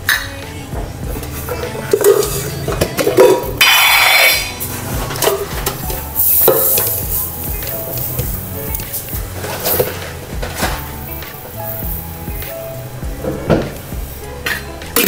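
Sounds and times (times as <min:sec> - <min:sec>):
background music: 0:00.0 - 0:15.0
metal lids clinking and knocking: 0:01.1 - 0:03.7, 0:04.6 - 0:12.6.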